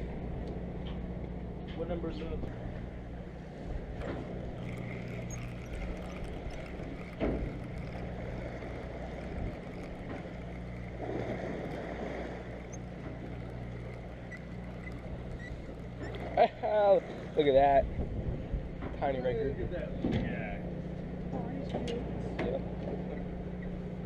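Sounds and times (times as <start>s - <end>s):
sea wash: 0.0s - 20.0s
boat engine hum: 0.0s - 24.0s
wind: 0.0s - 24.0s
fishing reel cranking: 3.9s - 17.8s.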